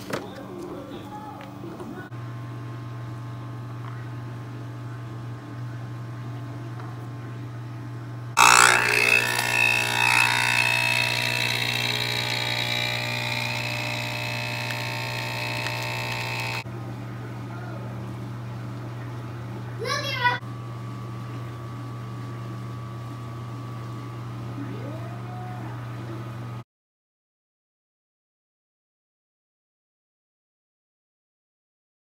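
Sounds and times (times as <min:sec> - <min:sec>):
low steady hum: 0:00.7 - 0:19.8
espresso machine running: 0:08.4 - 0:17.1.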